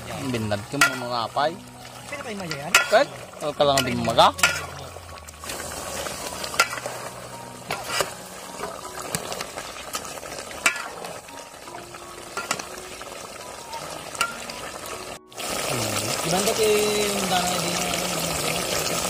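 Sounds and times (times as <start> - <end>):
food sizzling in a pan: 0.0 - 19.0
spoon scraping against pan: 6.5 - 8.8.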